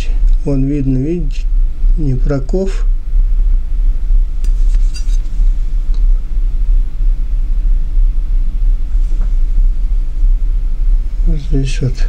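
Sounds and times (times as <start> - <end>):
loud low rumble: 0.0 - 12.0.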